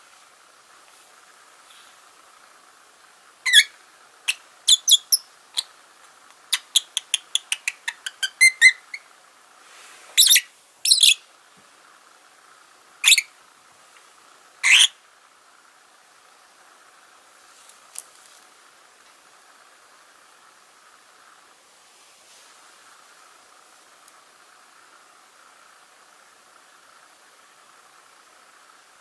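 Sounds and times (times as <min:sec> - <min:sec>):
lovebird chirping: 0:03.4 - 0:05.8, 0:06.5 - 0:09.1, 0:10.2 - 0:11.3, 0:13.0 - 0:13.4, 0:14.6 - 0:15.0.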